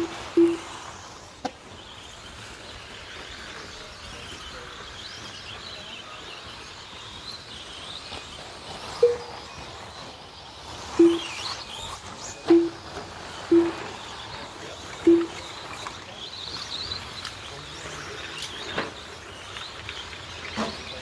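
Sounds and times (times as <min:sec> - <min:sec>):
faint wavering high chirps: 0:00.0 - 0:01.3, 0:07.1 - 0:18.7.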